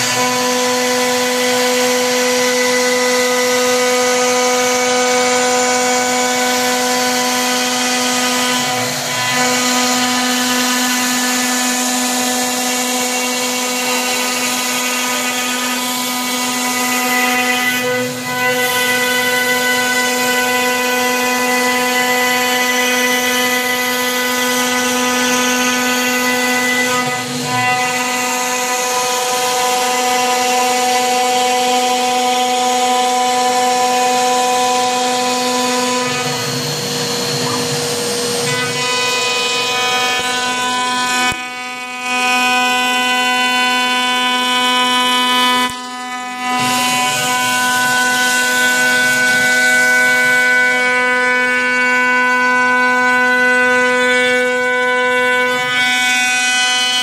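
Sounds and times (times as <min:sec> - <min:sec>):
vacuum cleaner running: 0:00.0 - 0:16.9, 0:23.5 - 0:42.1
router spindle milling wood: 0:00.0 - 0:57.0.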